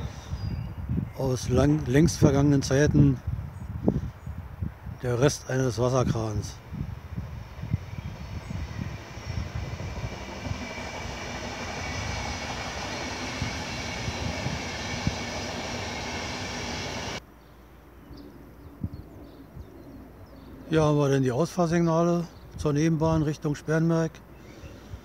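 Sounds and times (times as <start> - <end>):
train rumbling past: 0.0 - 0.2, 6.4 - 17.2
faint outdoor background: 0.0 - 25.0.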